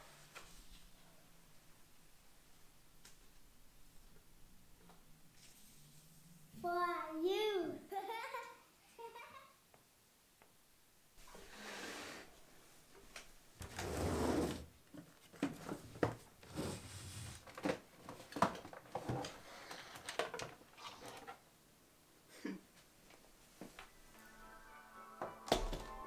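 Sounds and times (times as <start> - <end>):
scraping rustle on shelf: 13.6 - 14.6, 16.4 - 17.6.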